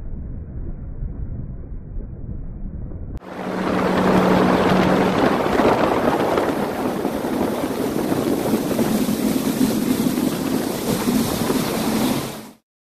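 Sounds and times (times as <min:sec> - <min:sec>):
wind buffeting microphone: 0:00.3 - 0:12.6
water rushing past hull: 0:03.2 - 0:12.6
watercraft engine: 0:03.2 - 0:12.6.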